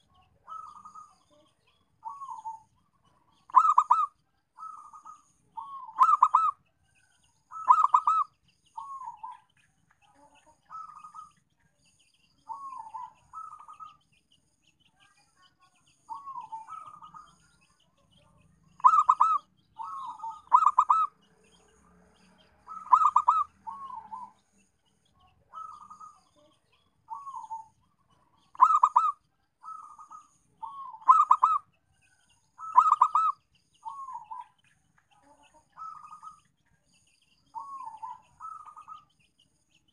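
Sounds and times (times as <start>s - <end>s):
dove cooing: 0.0s - 1.4s, 2.0s - 2.7s, 3.4s - 6.6s, 7.5s - 9.4s, 12.5s - 13.9s, 16.1s - 17.3s, 18.8s - 21.2s, 22.6s - 24.4s, 25.5s - 26.2s, 27.1s - 27.7s, 28.5s - 31.7s, 32.6s - 34.5s, 35.8s - 36.4s, 37.6s - 39.0s.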